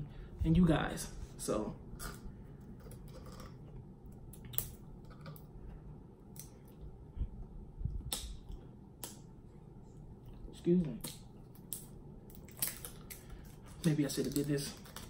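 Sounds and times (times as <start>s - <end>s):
plastic crinkling: 12.4s - 15.0s.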